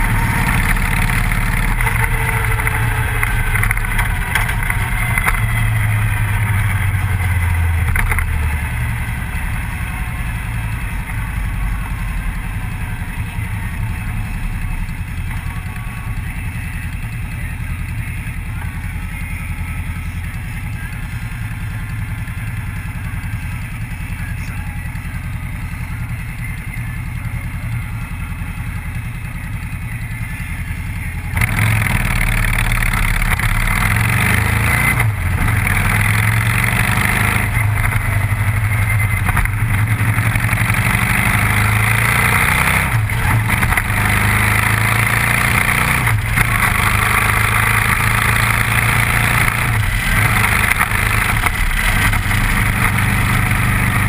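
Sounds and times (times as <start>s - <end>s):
wind and road noise: 0.0s - 15.7s, 31.3s - 54.0s
motorcycle engine running: 0.0s - 54.0s.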